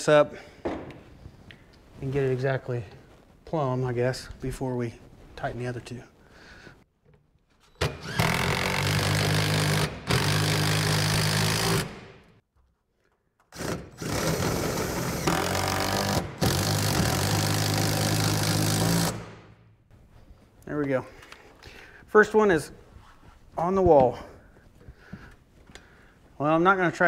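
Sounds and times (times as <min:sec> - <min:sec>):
power driver motor: 0:07.8 - 0:12.1, 0:13.6 - 0:19.4.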